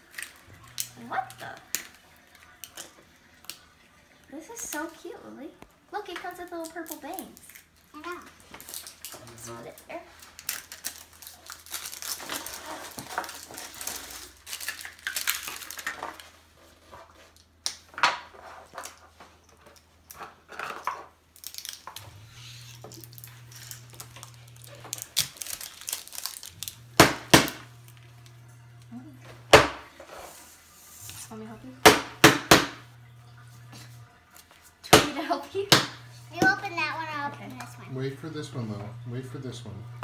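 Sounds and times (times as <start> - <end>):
plastic packaging crinkling: 6.5 - 17.6, 21.3 - 28.8
plastic pieces clicking: 10.3 - 16.2, 19.7 - 26.8.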